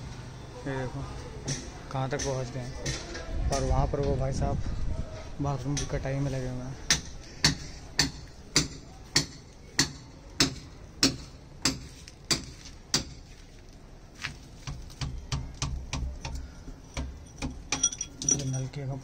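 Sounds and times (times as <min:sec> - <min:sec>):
hammer striking chisel into brick: 0:06.9 - 0:13.2.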